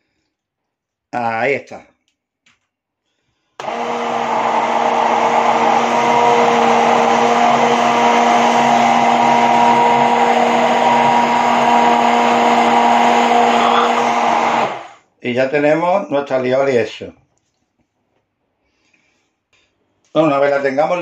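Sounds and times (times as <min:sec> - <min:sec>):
stick blender humming: 0:03.6 - 0:15.0.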